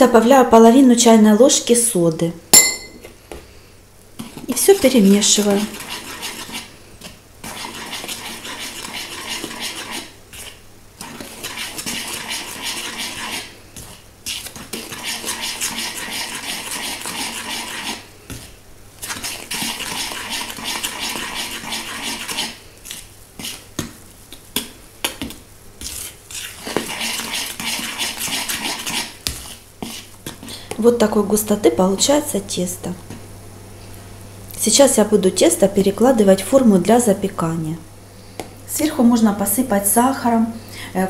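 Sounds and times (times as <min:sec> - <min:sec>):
utensil clinking against bowl: 0:02.6 - 0:03.1
metal utensil stirring batter: 0:04.2 - 0:30.9.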